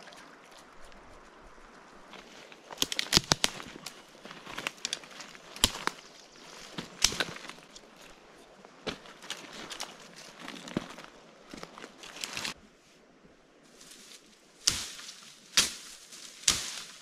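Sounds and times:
campfire crackling and popping: 1.7s - 4.0s.

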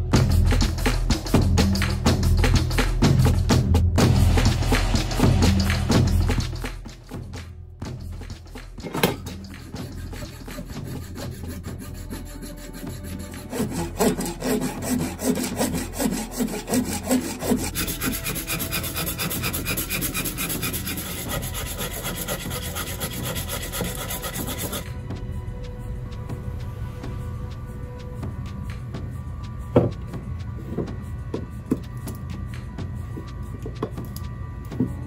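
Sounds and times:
coping saw cutting wood: 9.2s - 24.9s
hand file filing wood: 9.2s - 24.9s.

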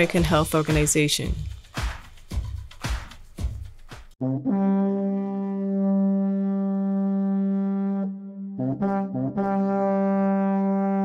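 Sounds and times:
brass instrument low note: 4.2s - 11.0s.

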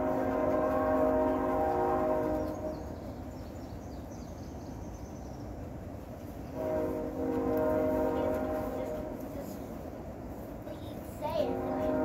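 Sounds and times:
horn sounding long chord: 0.0s - 2.8s, 6.6s - 9.3s, 11.4s - 12.0s.

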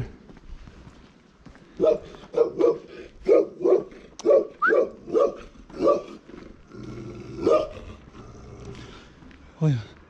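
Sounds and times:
dog barking: 1.8s - 6.2s, 7.4s - 7.8s.

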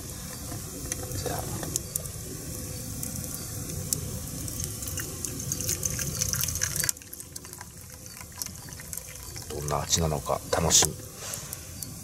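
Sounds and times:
liquid pouring into metal cup: 3.9s - 11.0s.

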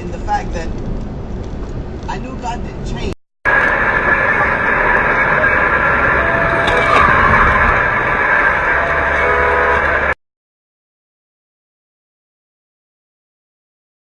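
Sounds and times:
car road and engine noise: 0.0s - 10.2s.

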